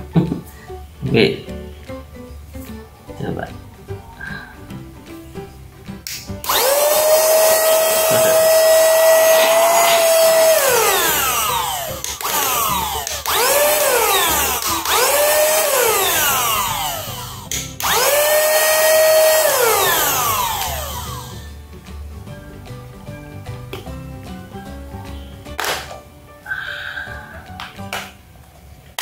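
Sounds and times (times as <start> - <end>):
handheld vacuum motor whine: 6.4 - 21.5.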